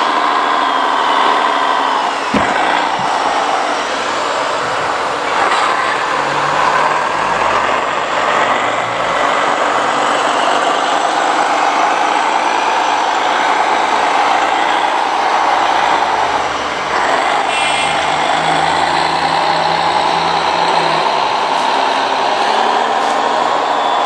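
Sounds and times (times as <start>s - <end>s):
model truck motors whirring: 0.0s - 24.0s.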